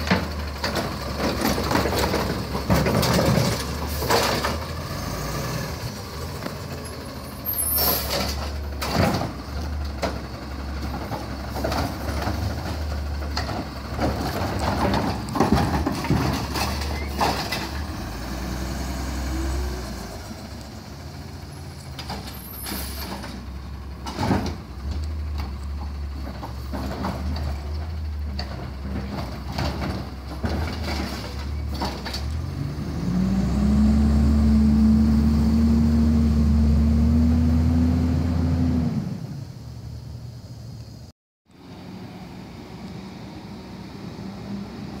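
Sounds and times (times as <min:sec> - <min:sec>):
knocks and clanks: 0:00.0 - 0:04.7, 0:08.0 - 0:17.9, 0:22.0 - 0:32.4
garbage truck engine running: 0:00.0 - 0:37.5.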